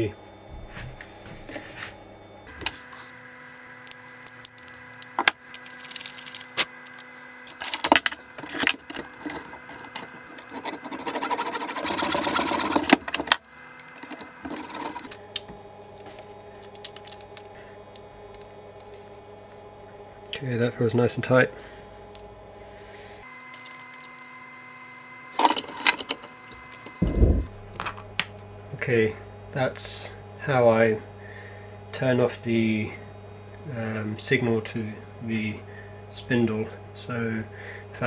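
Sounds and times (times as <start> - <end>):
faint steady hum: 0.0 - 38.0.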